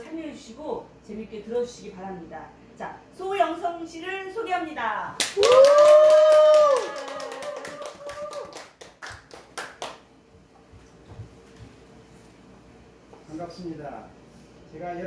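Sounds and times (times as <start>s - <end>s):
small audience clapping: 5.2s - 10.1s.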